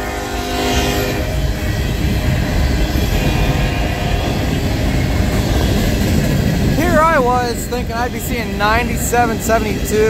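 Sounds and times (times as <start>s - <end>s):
train wheels rumbling on rails: 0.0s - 10.0s
horn-like tone: 3.1s - 4.6s.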